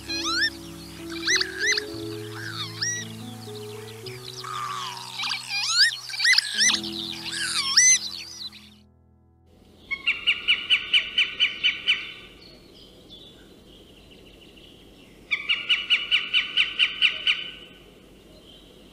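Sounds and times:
rapid sharp bird calls: 0:00.0 - 0:08.8.

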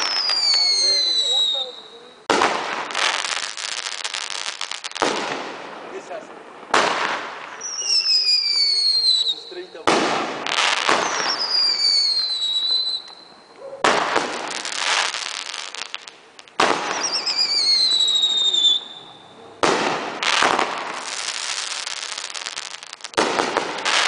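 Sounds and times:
falling whistles: 0:00.0 - 0:02.0, 0:07.6 - 0:09.8, 0:11.0 - 0:13.6, 0:16.8 - 0:19.4
fireworks bangs: 0:00.0 - 0:24.0
fireworks hissing: 0:00.0 - 0:24.0.

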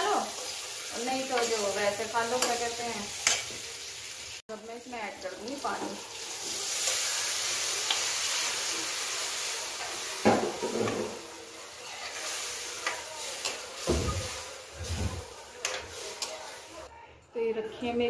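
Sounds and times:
hot oil hissing and sizzling: 0:00.0 - 0:16.9
spoon stirring in pan: 0:05.8 - 0:16.8.

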